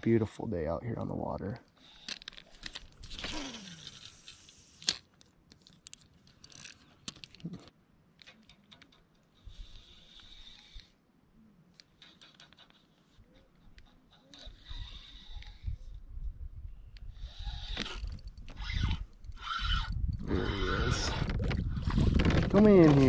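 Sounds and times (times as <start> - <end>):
fishing reel clicks and rattles: 1.6 - 7.4, 11.8 - 15.9, 17.1 - 21.0
fishing reel whirring: 1.8 - 5.1, 9.3 - 11.0, 14.3 - 16.0, 17.0 - 21.2.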